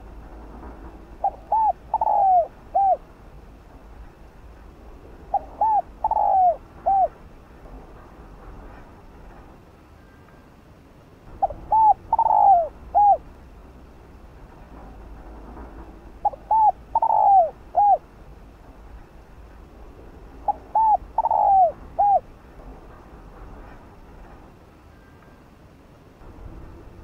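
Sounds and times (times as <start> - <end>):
dove cooing: 1.2 - 3.1, 5.3 - 7.2, 11.4 - 13.3, 16.2 - 18.1, 20.4 - 22.3.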